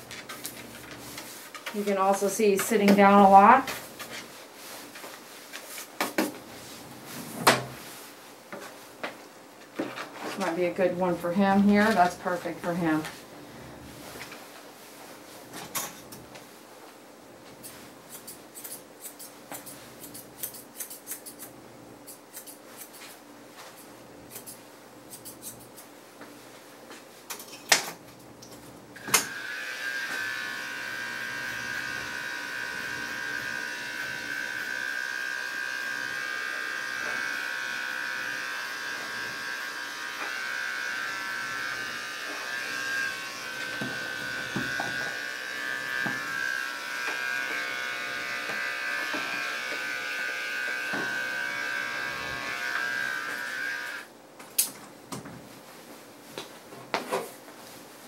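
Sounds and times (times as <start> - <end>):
scissors snipping: 18.1 - 23.2
dog clipper buzzing: 29.0 - 54.1.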